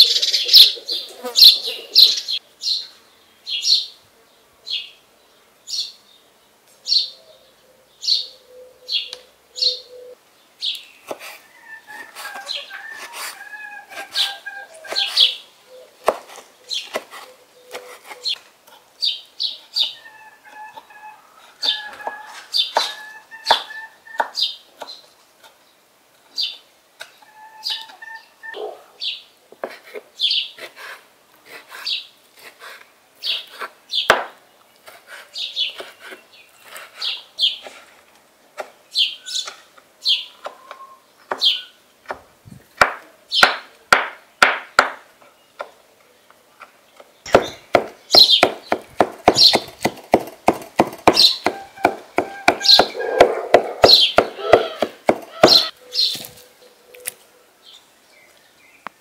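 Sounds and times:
small bird chirping: 0:45.4 - 0:49.9, 0:52.4 - 0:53.2, 0:53.8 - 0:59.0
knife chopping on wooden board: 0:47.3 - 0:55.7.

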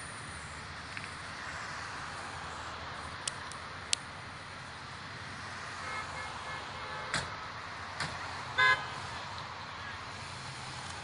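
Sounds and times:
roadside traffic noise: 0:00.0 - 0:11.0
vehicle horn toot: 0:05.8 - 0:07.3, 0:08.6 - 0:08.9.

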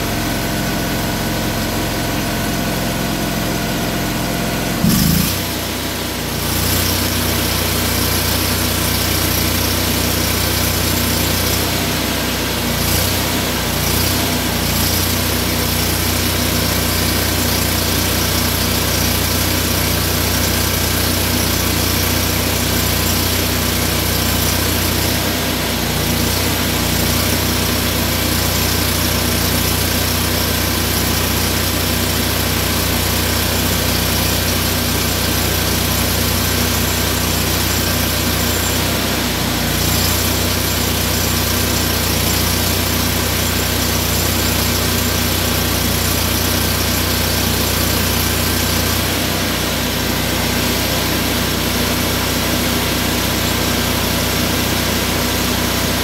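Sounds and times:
engine humming steadily: 0:00.0 - 0:56.0.

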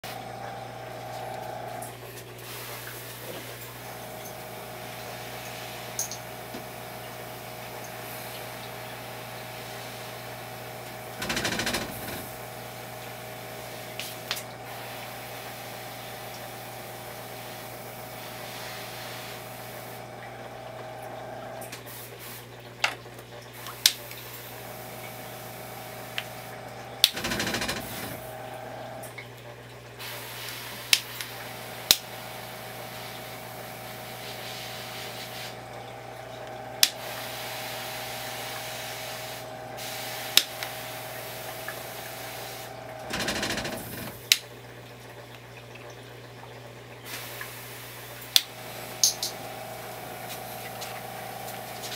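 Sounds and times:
faint water hiss: 0:01.5 - 0:10.4, 0:12.8 - 0:22.5, 0:30.0 - 0:43.0, 0:47.0 - 0:51.9
sharp clicks: 0:11.2 - 0:12.2, 0:43.1 - 0:44.4.

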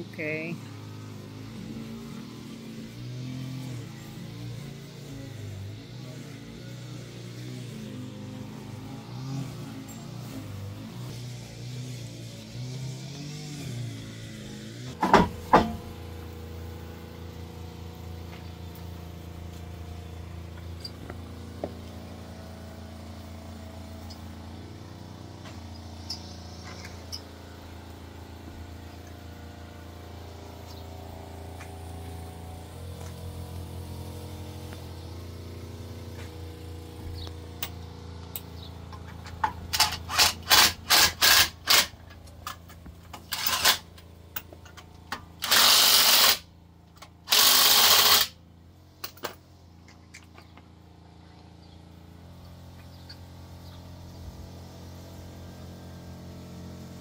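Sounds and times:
impact wrench bursts: 0:38.6 - 0:44.5, 0:45.1 - 0:48.4.

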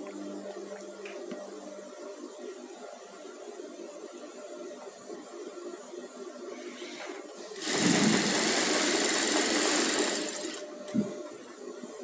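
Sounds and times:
sewing machine stitching: 0:07.6 - 0:10.6.

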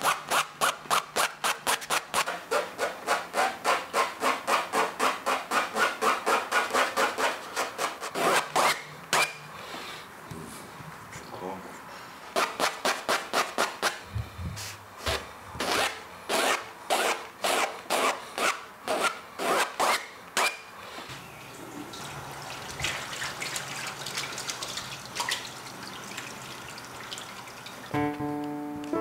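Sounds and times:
pencil scratching paper: 0:00.0 - 0:08.8
tap running into washbasin: 0:21.1 - 0:27.9.

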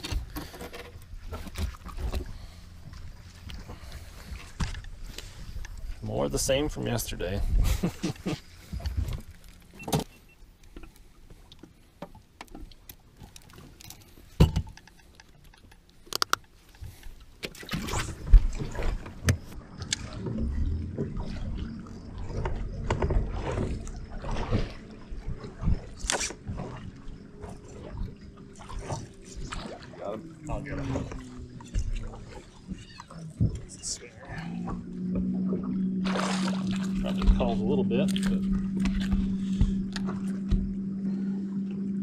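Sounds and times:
electric trolling motor humming: 0:18.2 - 0:42.0.

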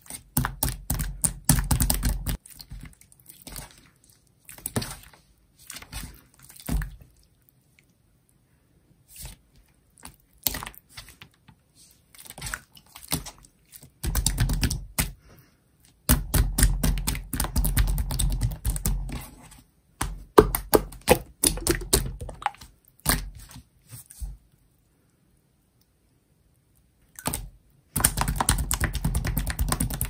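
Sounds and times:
slime clicking and popping: 0:27.2 - 0:30.0.

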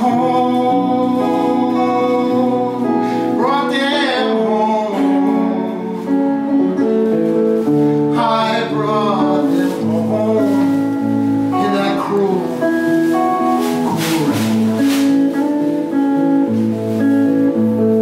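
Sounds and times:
guitar music: 0:00.0 - 0:18.0.

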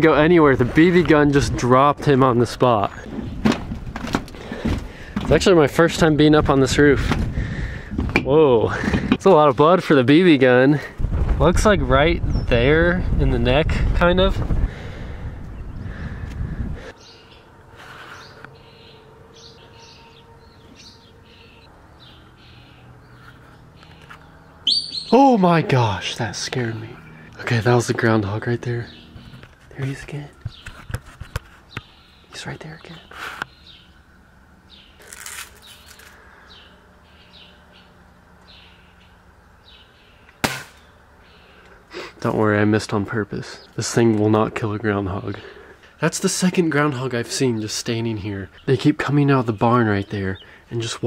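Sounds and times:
small birds chirping: 0:14.7 - 0:51.0
small bird chirping: 0:18.2 - 0:25.4, 0:34.6 - 0:41.7
brief rustle: 0:35.0 - 0:36.2
bb gun firing crack: 0:40.4 - 0:40.9.

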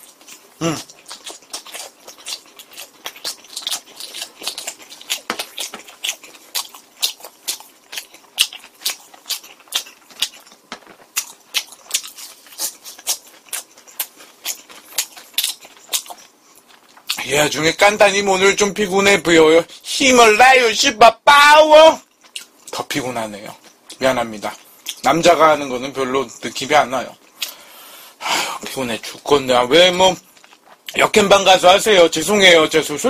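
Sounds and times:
close chewing with mouth clicks: 0:00.0 - 0:17.3, 0:22.0 - 0:25.1, 0:26.4 - 0:27.6, 0:30.2 - 0:31.1.

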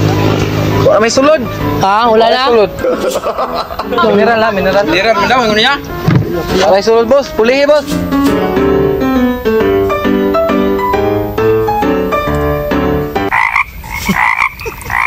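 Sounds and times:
keyboard melody: 0:00.0 - 0:13.8
repeated croaking calls: 0:13.3 - 0:15.0.

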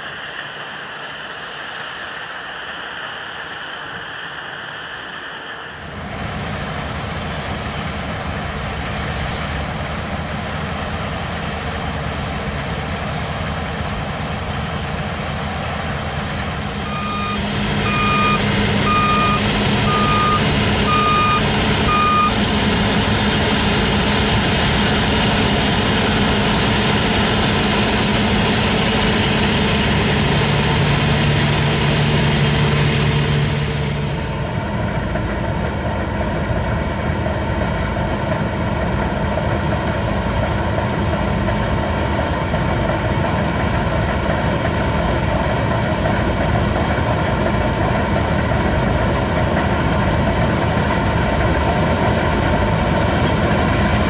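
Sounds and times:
combine harvester running: 0:00.0 - 0:54.0
reversing alarm beeping: 0:16.8 - 0:22.4.

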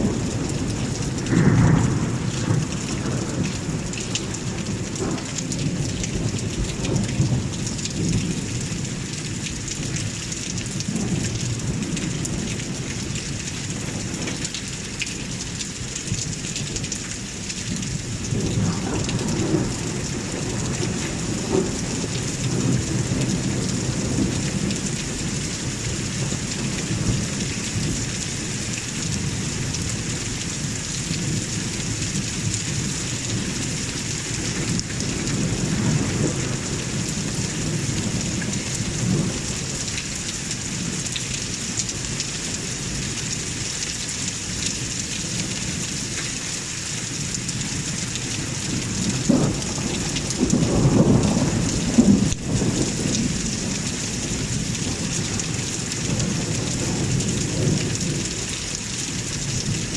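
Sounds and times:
thunder rumbling: 0:00.0 - 0:08.9, 0:18.3 - 0:27.5, 0:48.4 - 0:58.4
rain hiss: 0:00.0 - 0:59.9.

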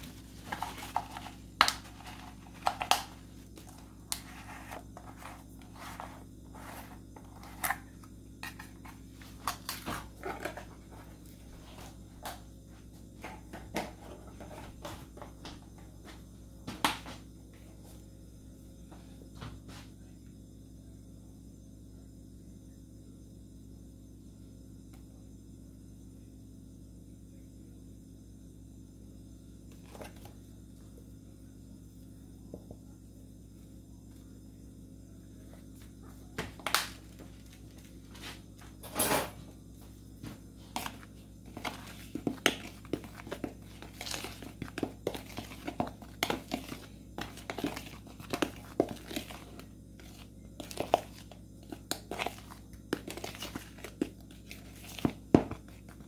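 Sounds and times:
flour rustling in plastic bowl: 0:00.0 - 0:11.9, 0:40.6 - 0:56.0
steady low hum: 0:00.0 - 0:56.0.

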